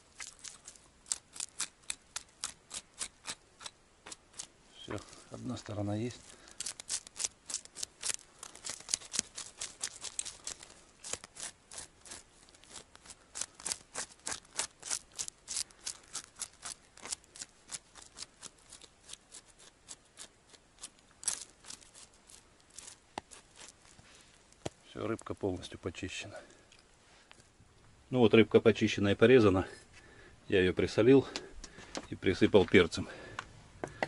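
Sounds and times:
fork scraping fish scales: 0.1s - 24.2s.

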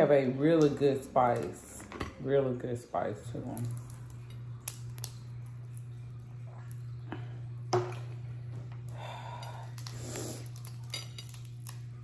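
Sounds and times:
steady low hum: 0.0s - 12.0s
shells cracking: 3.6s - 5.8s.

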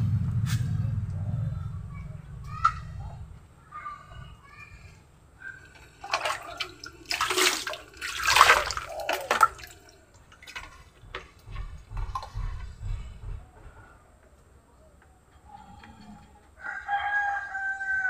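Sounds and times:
water sloshing and pouring: 5.5s - 12.8s
plastic container knocking: 10.7s - 13.6s.

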